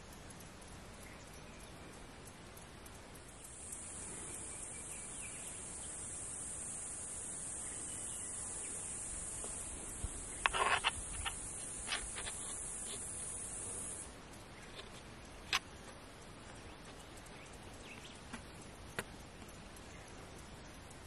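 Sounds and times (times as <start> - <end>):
high-pitched insect buzz: 3.2 - 15.0.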